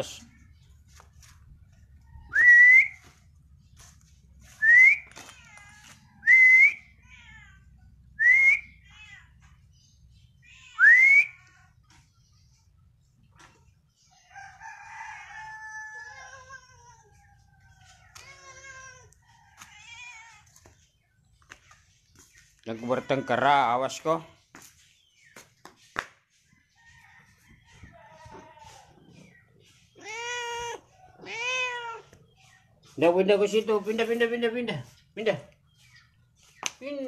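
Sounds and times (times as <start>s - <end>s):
person whistling rising pitch: 2.3s - 3.1s, 4.6s - 5.1s, 6.2s - 6.8s, 8.2s - 8.7s, 10.8s - 11.3s
faint rooster crow: 14.0s - 18.4s, 19.0s - 20.5s, 26.4s - 29.4s.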